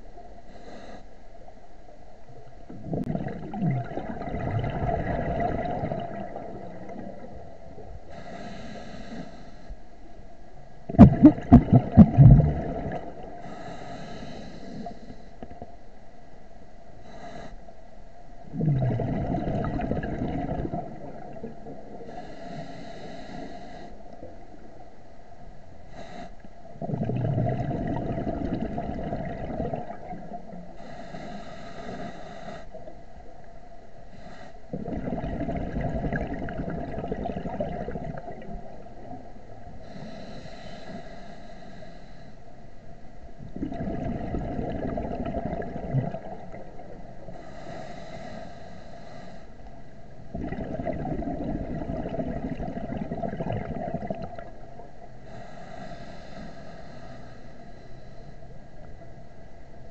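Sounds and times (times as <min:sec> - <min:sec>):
hissing regulator inhale: 0:00.4 - 0:01.2, 0:08.0 - 0:09.9, 0:13.2 - 0:15.5, 0:17.0 - 0:17.7, 0:22.0 - 0:24.4, 0:25.8 - 0:26.7, 0:30.6 - 0:33.0, 0:34.0 - 0:34.9, 0:39.6 - 0:42.6, 0:46.4 - 0:49.9, 0:55.2 - 0:58.6
bubbling exhale underwater: 0:02.7 - 0:07.9, 0:10.9 - 0:13.4, 0:18.4 - 0:22.1, 0:26.8 - 0:30.6, 0:34.7 - 0:40.3, 0:43.4 - 0:47.1, 0:50.2 - 0:54.6.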